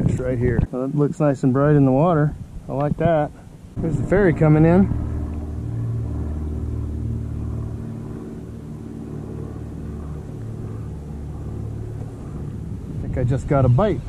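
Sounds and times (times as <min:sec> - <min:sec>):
ferry diesel engines droning: 0:03.3 - 0:14.0.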